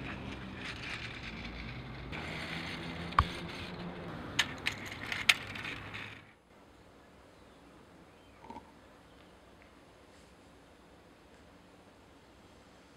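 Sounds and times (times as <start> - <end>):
metal toy wheels scraping concrete: 0.0 - 6.4.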